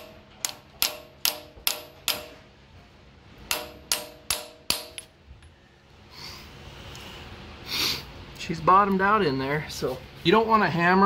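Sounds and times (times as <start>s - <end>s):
hammer tapping metal socket: 0.0s - 2.4s.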